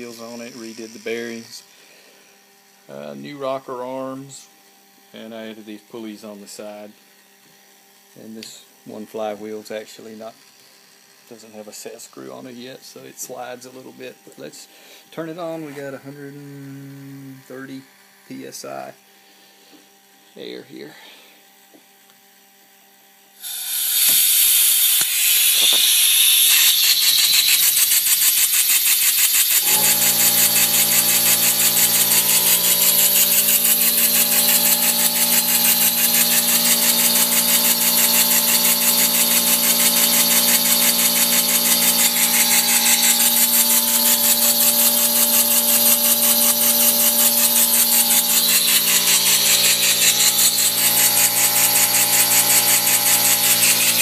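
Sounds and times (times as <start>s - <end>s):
steady motor hum: 23.4s - 54.0s.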